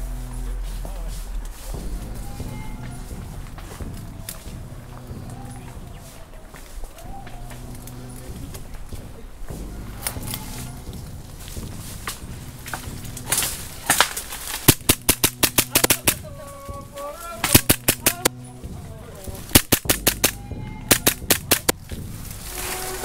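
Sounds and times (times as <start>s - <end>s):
airsoft pistol shots: 14.6s - 16.2s, 17.4s - 18.3s, 19.6s - 21.7s.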